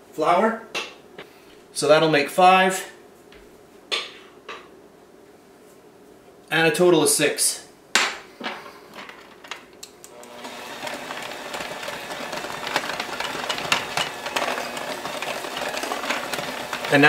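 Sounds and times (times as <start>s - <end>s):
electric hand mixer running: 10.1s - 17.0s
beaters rattling in glass bowl: 12.3s - 17.0s.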